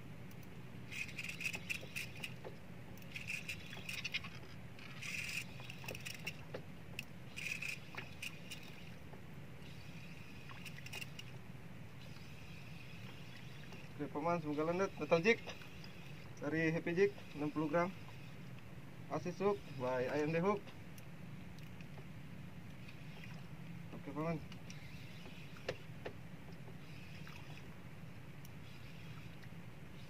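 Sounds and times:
steady low hum: 0:00.0 - 0:30.0
fishing reel clicking and whirring: 0:00.9 - 0:09.0, 0:09.6 - 0:11.4, 0:12.0 - 0:18.5, 0:19.3 - 0:20.6, 0:22.8 - 0:23.4, 0:24.1 - 0:26.0, 0:26.8 - 0:27.7, 0:28.4 - 0:30.0.

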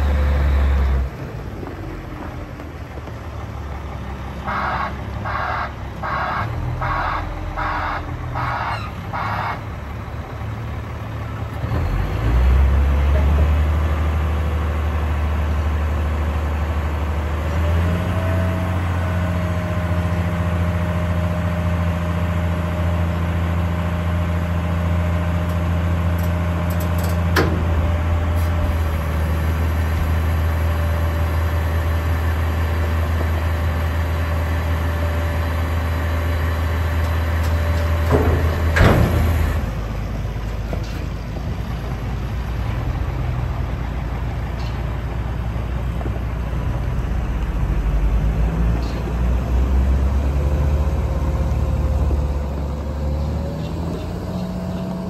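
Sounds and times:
diesel engine revving: 0:00.0 - 0:55.0.

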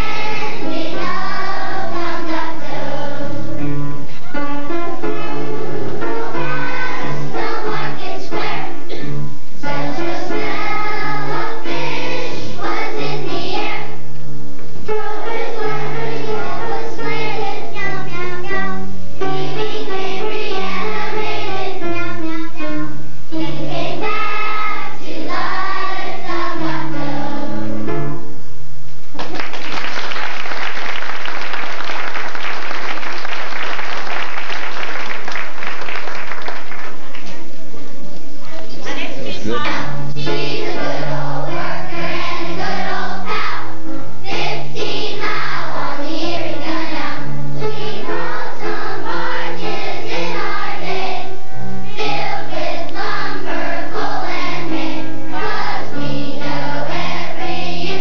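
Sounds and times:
children's choir singing: 0:00.0 - 0:14.1, 0:14.8 - 0:28.1, 0:39.0 - 0:58.0
instrumental accompaniment: 0:00.0 - 0:29.5, 0:30.4 - 0:58.0
audience applause: 0:29.2 - 0:37.4.

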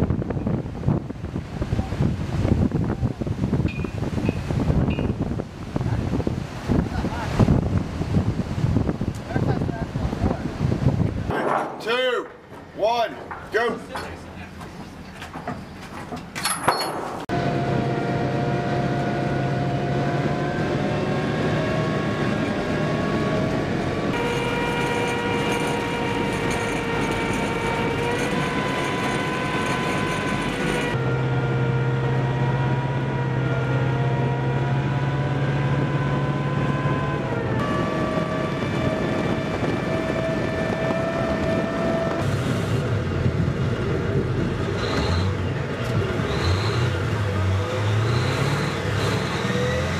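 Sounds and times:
vehicle engine whining: 0:17.2 - 0:49.9.

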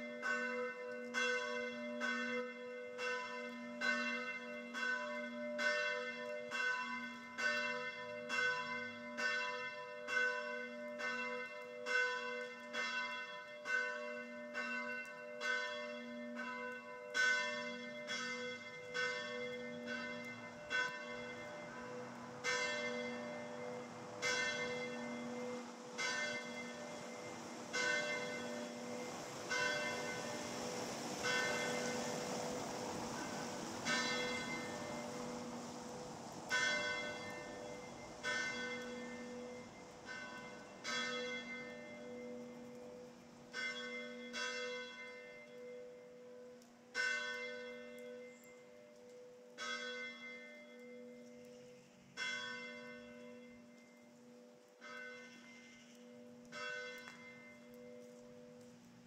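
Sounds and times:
steady background noise: 0:15.9 - 0:59.0.

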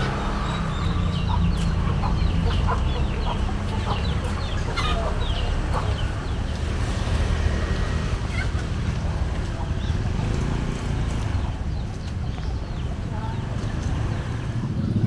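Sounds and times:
birds chirping: 0:00.0 - 0:15.0.

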